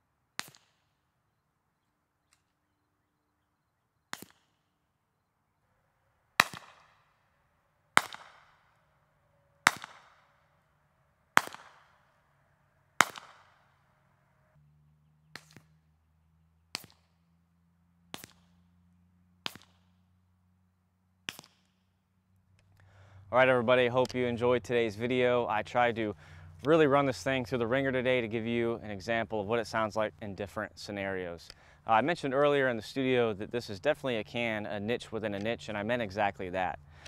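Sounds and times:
quiet suppressed gunshots: 9.5 - 10.6, 11.3 - 12.2, 13.0 - 13.9
loud gunshots with echo: 9.6 - 10.3, 11.4 - 12.0, 13.0 - 13.6.

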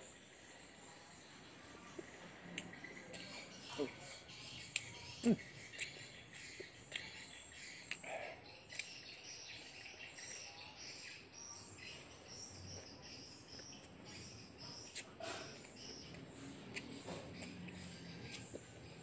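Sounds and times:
person chewing food: 1.9 - 3.5, 4.6 - 9.2, 13.5 - 19.0.

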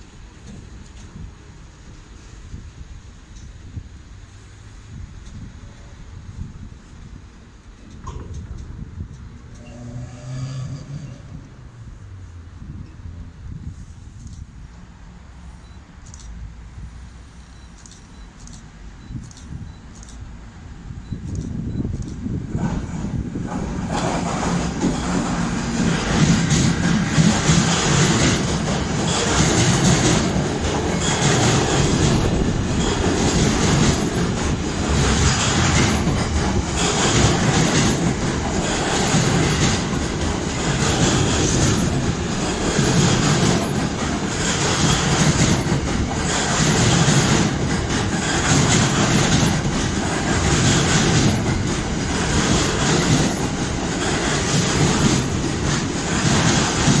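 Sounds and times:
freight train wheels rumbling: 0.0 - 57.0
wheels clacking over rail joints: 21.4 - 57.0.

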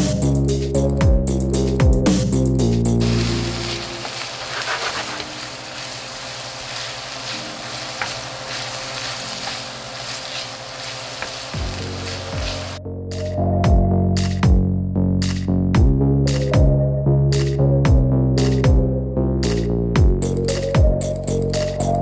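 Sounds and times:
wooden spoon scraping a pan: 3.0 - 5.5
meat sizzling in a frying pan: 3.0 - 12.8.

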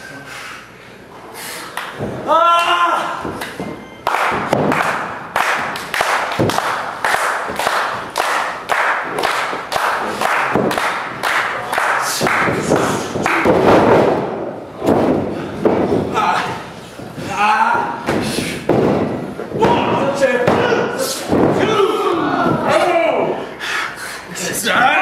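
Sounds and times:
crowd clapping in unison: 3.4 - 13.5.

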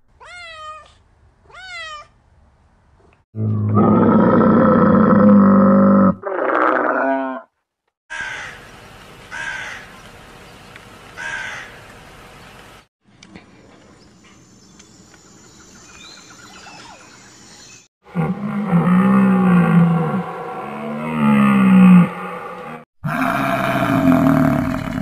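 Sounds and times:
crow cawing: 8.1 - 8.6, 9.4 - 9.9, 11.2 - 11.8.

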